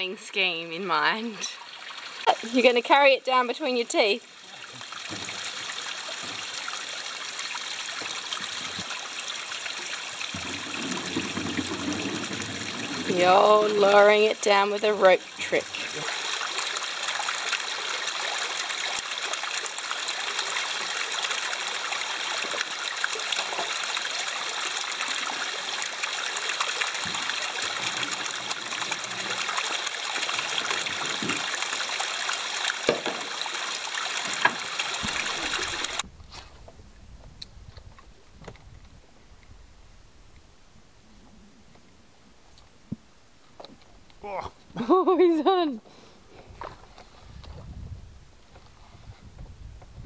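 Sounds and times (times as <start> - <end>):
water trickling down rock: 0.8 - 36.0.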